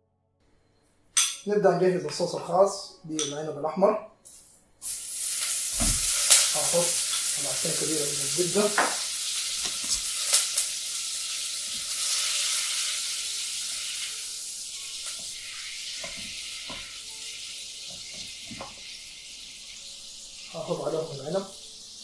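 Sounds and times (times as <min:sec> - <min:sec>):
butter sizzling in a pot: 0:04.8 - 0:22.0.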